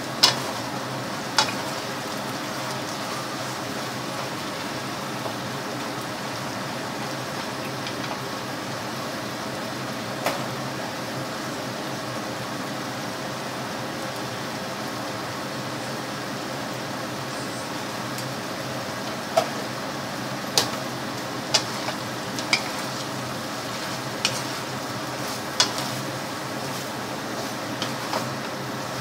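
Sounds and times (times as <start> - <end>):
food sizzling in frying pan: 0.0 - 29.0
wooden spoon knocking on pan: 21.6 - 26.0.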